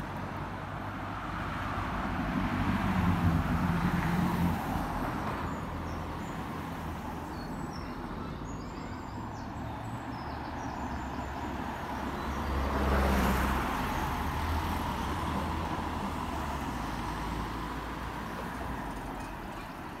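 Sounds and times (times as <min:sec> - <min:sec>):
cars driving past: 0:00.0 - 0:20.0
car passing close: 0:11.0 - 0:19.5.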